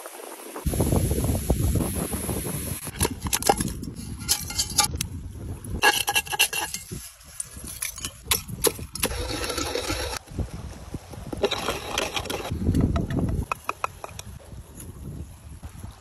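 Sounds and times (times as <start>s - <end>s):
metal utensil scraping metal pan: 2.9s - 5.0s, 5.8s - 10.2s, 11.4s - 12.9s.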